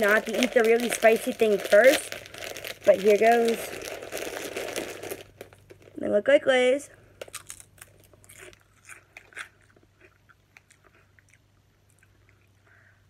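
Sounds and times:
potato chip crunching: 0:00.0 - 0:06.0, 0:07.2 - 0:12.6.

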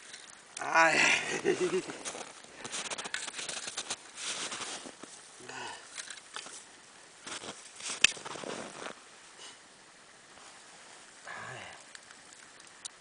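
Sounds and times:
rustling and crunching of snow: 0:00.0 - 0:09.6.

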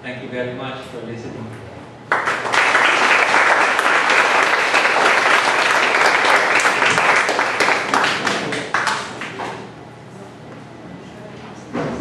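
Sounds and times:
audience applauding: 0:02.1 - 0:09.4.

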